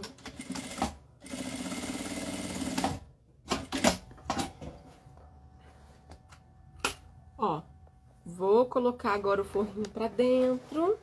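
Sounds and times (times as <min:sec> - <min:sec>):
industrial sewing machine running: 0:00.3 - 0:03.0
fabric rustling: 0:09.6 - 0:11.0.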